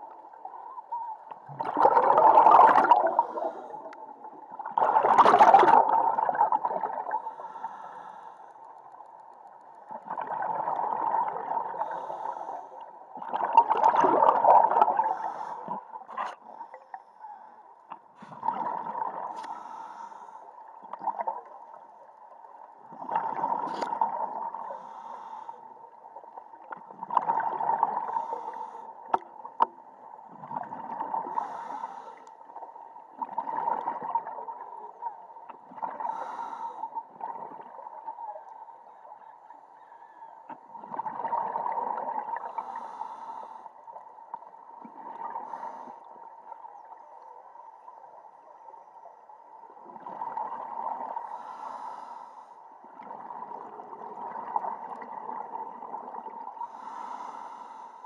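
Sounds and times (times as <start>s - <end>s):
faint steady tone: 0.0s - 1.5s, 14.7s - 58.0s
exhaled bubbles underwater: 0.0s - 7.6s, 9.9s - 17.0s, 18.2s - 19.4s, 20.6s - 24.8s, 26.0s - 31.7s, 32.5s - 39.4s, 40.4s - 49.0s, 49.6s - 51.9s, 52.8s - 57.4s.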